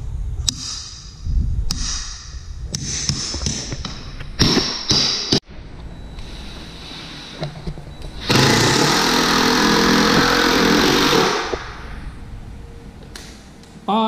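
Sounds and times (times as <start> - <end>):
cordless drill driving screw: 8.2 - 11.7.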